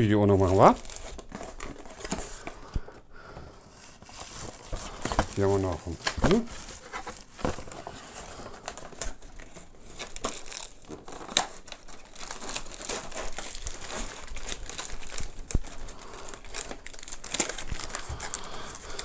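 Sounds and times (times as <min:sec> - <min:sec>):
plastic bag crinkling: 0:00.0 - 0:02.7, 0:03.9 - 0:19.0
cardboard packaging rustling: 0:00.0 - 0:19.0.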